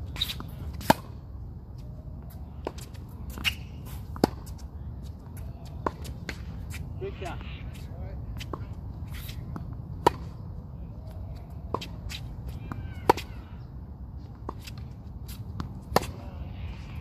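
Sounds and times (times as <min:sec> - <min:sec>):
tennis ball struck by rackets: 0:00.2 - 0:01.2, 0:02.6 - 0:04.6, 0:09.2 - 0:10.4, 0:11.6 - 0:13.4, 0:14.4 - 0:16.3.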